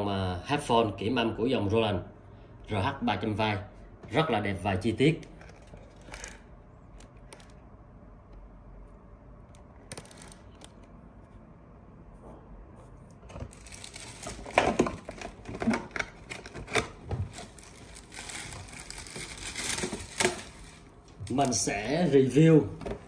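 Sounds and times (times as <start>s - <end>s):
plastic bag crinkling: 5.4s - 7.6s, 9.9s - 10.9s, 13.4s - 21.8s.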